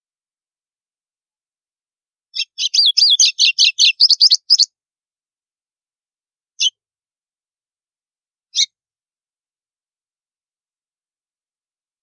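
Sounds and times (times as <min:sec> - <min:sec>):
bird singing high clipped notes: 0:02.4 - 0:04.7.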